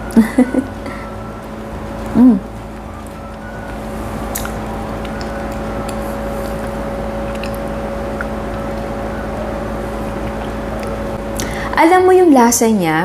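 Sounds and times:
steady low hum: 0.0s - 13.0s
soft wet chewing: 0.1s - 11.6s.

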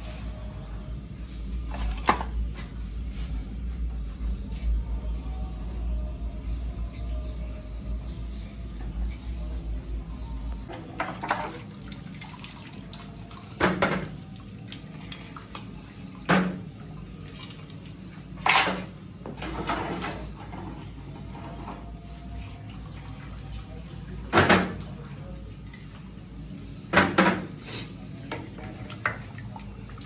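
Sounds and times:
broth splashing and dripping: 11.1s - 18.1s, 28.6s - 30.0s.

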